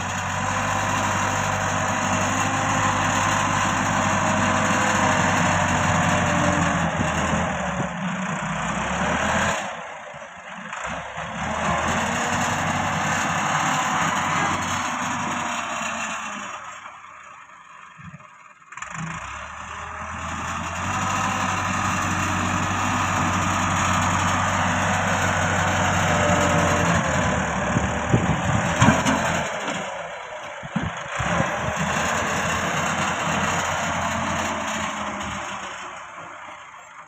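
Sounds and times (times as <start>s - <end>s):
tractor diesel engine under load: 0.0s - 37.0s
metal clanks and knocks: 28.6s - 29.5s.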